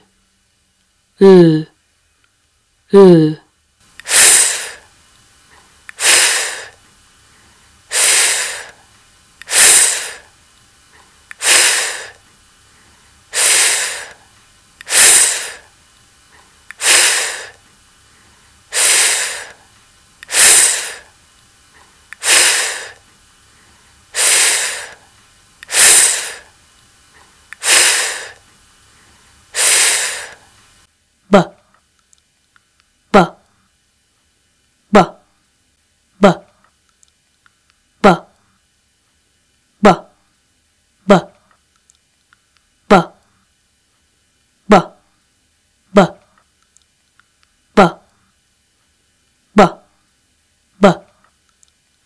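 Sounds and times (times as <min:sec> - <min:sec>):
person making breathy f sound: 0:01.2 - 0:01.7, 0:02.9 - 0:03.4, 0:04.1 - 0:04.8, 0:06.0 - 0:06.8, 0:07.9 - 0:08.8, 0:09.5 - 0:10.3, 0:11.4 - 0:12.2, 0:13.3 - 0:14.2, 0:14.8 - 0:15.7, 0:16.8 - 0:17.6, 0:18.7 - 0:19.6, 0:20.3 - 0:21.1, 0:22.2 - 0:23.0, 0:24.2 - 0:25.0, 0:25.7 - 0:26.5, 0:27.6 - 0:28.4, 0:29.6 - 0:30.4, 0:33.2 - 0:33.4, 0:35.0 - 0:35.2, 0:36.2 - 0:36.5, 0:38.0 - 0:38.3, 0:45.9 - 0:46.2.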